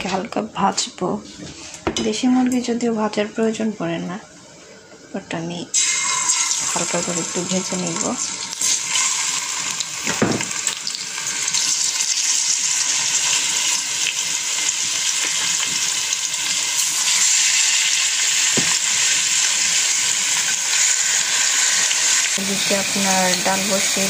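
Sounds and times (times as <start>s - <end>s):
chicken sizzling in a pot: 5.7s - 24.0s.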